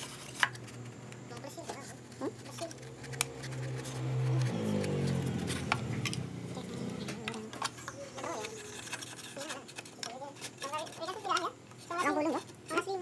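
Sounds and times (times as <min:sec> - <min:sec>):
low droning hum: 0:00.4 - 0:08.2.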